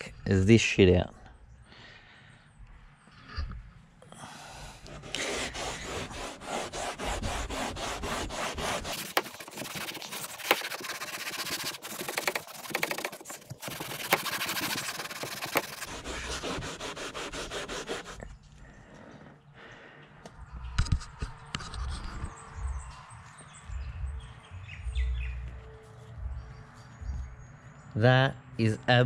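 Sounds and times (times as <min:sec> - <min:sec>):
cloth rubbing on fabric: 0:04.9 - 0:18.2.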